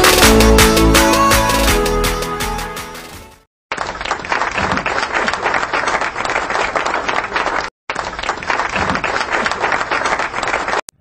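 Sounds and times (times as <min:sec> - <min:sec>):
crowd applause: 0:03.8 - 0:10.8.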